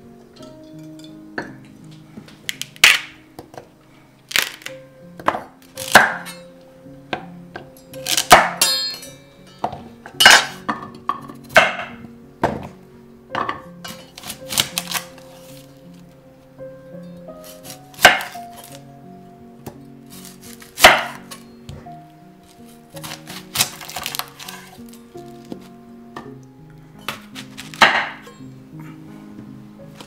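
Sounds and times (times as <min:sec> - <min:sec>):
faint background music: 0:00.0 - 0:30.0
knife chopping vegetables on board: 0:17.6 - 0:18.7, 0:20.2 - 0:21.3, 0:23.0 - 0:24.7, 0:27.1 - 0:28.3.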